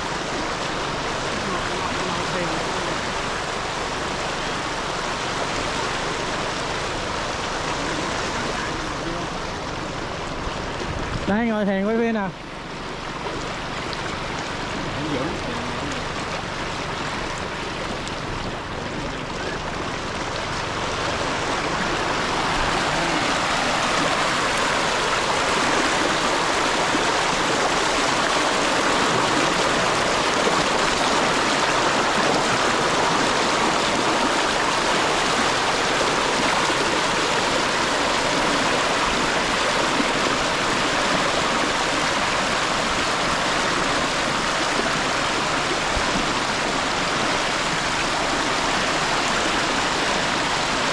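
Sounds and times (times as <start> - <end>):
water rushing over rocks: 0.0 - 50.9.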